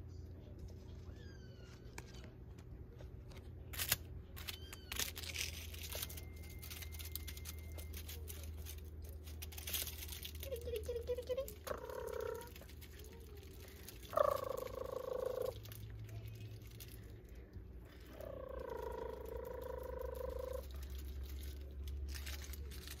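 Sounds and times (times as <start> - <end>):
kitten mewing: 11.3 - 12.7, 13.9 - 15.8, 17.9 - 20.8.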